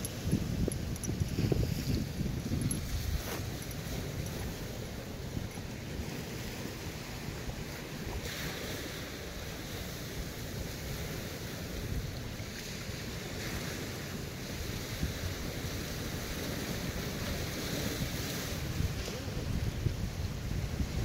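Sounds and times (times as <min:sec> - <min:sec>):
surf washing against rocks: 0:00.0 - 0:21.0
wind buffeting microphone: 0:00.0 - 0:21.0.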